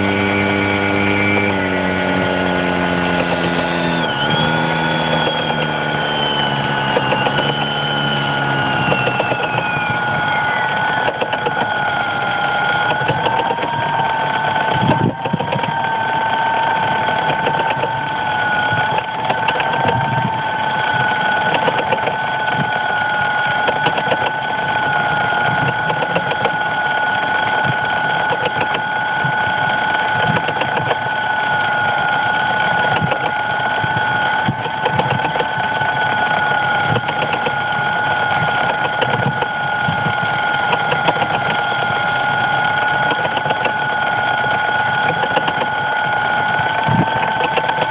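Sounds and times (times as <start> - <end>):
drone motors whining: 0.0 - 47.9
faint irregular ticking: 31.6 - 47.9.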